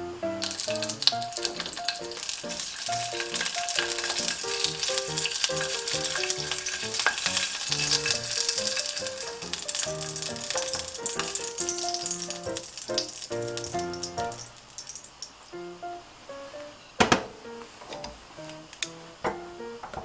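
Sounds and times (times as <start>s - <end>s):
soft background music: 0.0s - 14.6s, 15.6s - 20.0s
sausages sizzling in a frying pan: 0.4s - 15.6s.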